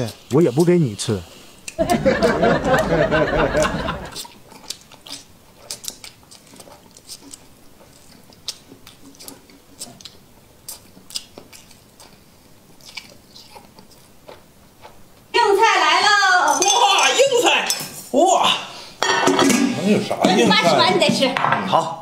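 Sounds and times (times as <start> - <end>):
sharp mouth clicks and smacks: 4.1 - 12.2, 12.8 - 15.0
man chewing and slurping: 4.1 - 15.3.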